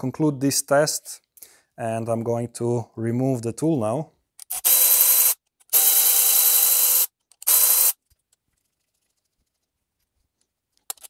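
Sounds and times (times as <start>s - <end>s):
electric ratchet whirring: 4.4s - 8.0s.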